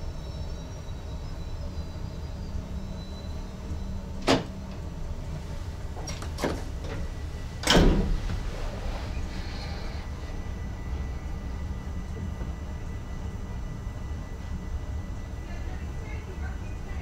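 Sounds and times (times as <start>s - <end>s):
electric train rumbling: 0.0s - 17.0s.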